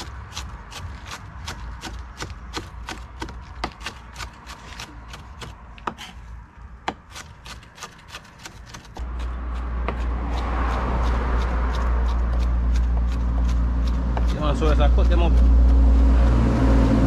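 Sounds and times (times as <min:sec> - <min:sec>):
knife chopping on wooden board: 0:00.0 - 0:06.2, 0:06.8 - 0:15.9.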